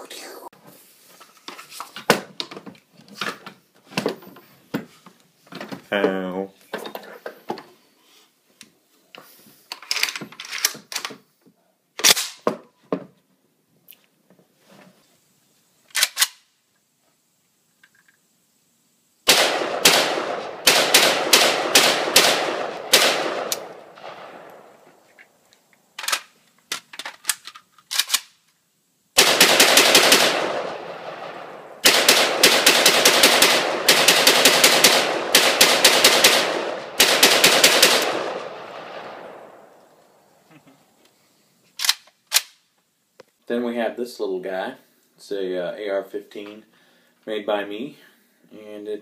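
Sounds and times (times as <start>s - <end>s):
rifle shots with echo: 19.3s - 24.8s, 29.2s - 39.8s.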